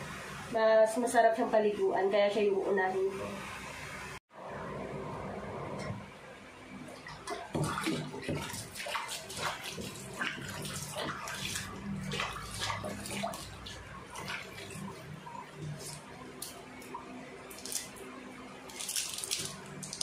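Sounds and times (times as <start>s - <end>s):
water splashing in metal sink: 6.8s - 18.1s, 18.7s - 20.0s.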